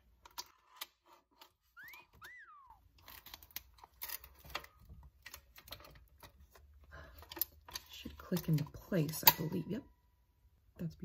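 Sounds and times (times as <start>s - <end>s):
two-note whistle: 1.8s - 2.8s.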